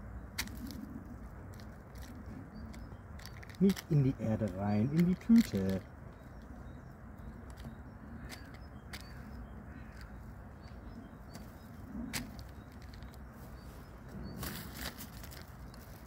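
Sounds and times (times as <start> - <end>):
distant city traffic rumble: 0.0 - 16.0
litter rustling and clicking: 1.5 - 6.3.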